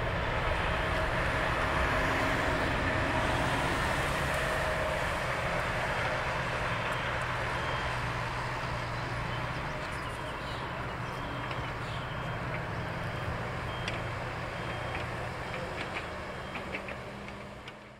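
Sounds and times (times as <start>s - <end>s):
jet engines roaring at takeoff: 0.0s - 12.2s.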